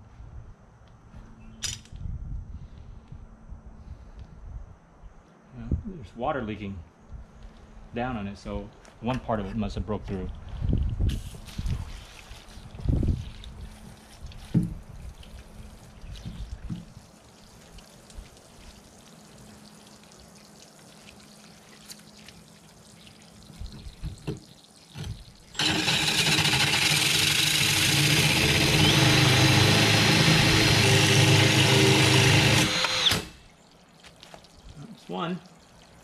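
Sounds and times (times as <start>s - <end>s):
faint water sounds: 11.3s - 25.6s, 33.4s - 36.0s
drill grinding through glass: 25.6s - 33.4s.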